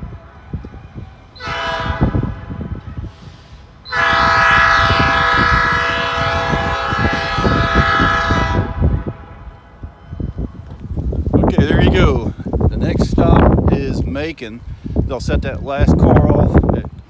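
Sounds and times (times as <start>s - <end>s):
locomotive air horn blasts: 1.3s - 10.0s.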